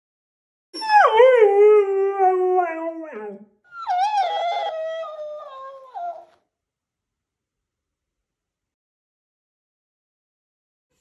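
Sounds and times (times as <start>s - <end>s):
dog howling: 0.8s - 6.3s.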